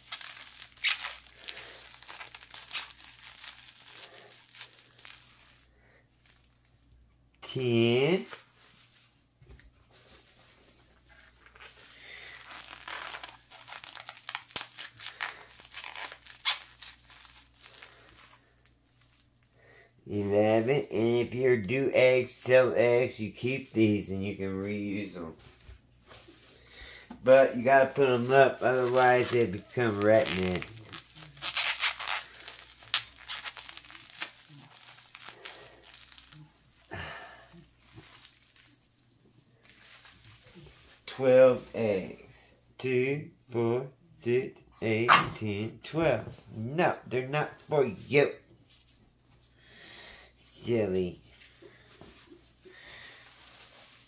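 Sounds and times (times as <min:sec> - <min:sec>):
bubble wrap crinkling and tearing: 0:00.0 - 0:06.9, 0:09.9 - 0:19.5, 0:25.4 - 0:41.8, 0:50.8 - 0:54.0.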